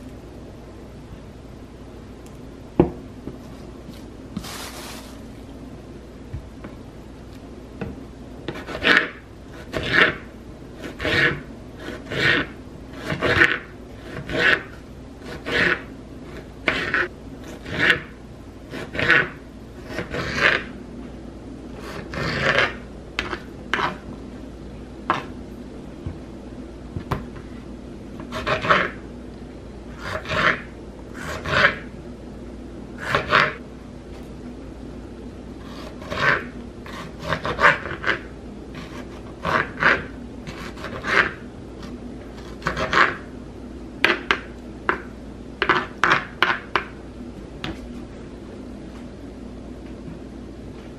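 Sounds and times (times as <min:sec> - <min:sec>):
knife cutting tomatoes on board: 0:08.5 - 0:20.7, 0:21.8 - 0:24.1, 0:25.1 - 0:25.4, 0:35.6 - 0:43.2, 0:45.6 - 0:46.9.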